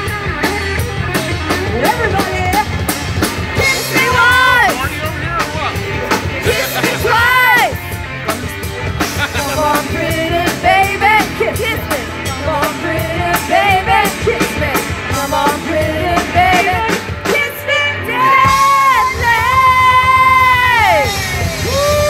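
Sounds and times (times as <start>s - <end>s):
drum kit beat: 0.0s - 22.0s
electric guitar: 0.0s - 22.0s
woman singing: 1.5s - 2.8s, 3.6s - 4.8s, 9.4s - 21.4s.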